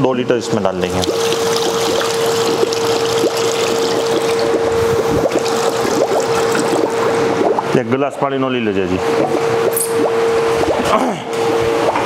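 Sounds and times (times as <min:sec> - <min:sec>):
water pouring into metal tank: 0:00.8 - 0:07.7
steady machine tone: 0:01.0 - 0:12.0.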